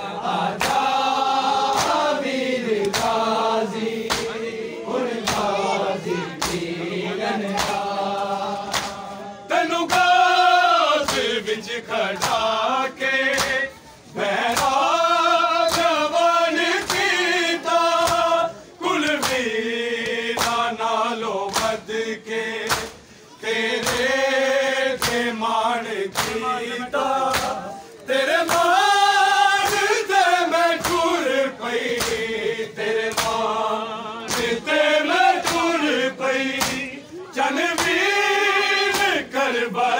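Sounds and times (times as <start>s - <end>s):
men chanting a lament: 0.0s - 39.9s
hands slapping bare chests: 0.5s - 4.4s, 5.1s - 5.6s, 6.2s - 6.7s, 7.4s - 9.1s, 9.8s - 10.2s, 11.0s - 11.4s, 12.2s - 12.5s, 13.3s - 13.6s, 14.5s - 14.9s, 15.6s - 16.0s, 16.8s - 17.2s, 17.9s - 18.3s, 19.1s - 20.7s, 21.4s - 21.8s, 22.6s - 23.0s, 23.8s - 24.2s, 24.9s - 25.3s, 26.1s - 26.5s, 27.2s - 27.7s, 28.4s - 28.9s, 29.6s - 30.0s, 30.7s - 31.3s, 31.9s - 32.3s, 33.0s - 33.6s, 34.2s - 34.7s, 35.3s - 36.9s, 37.7s - 38.0s, 38.8s - 39.2s.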